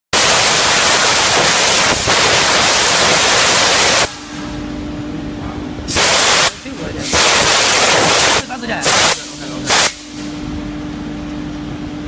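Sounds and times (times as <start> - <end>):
air blow gun hissing: 0.2 - 4.4, 5.9 - 10.4.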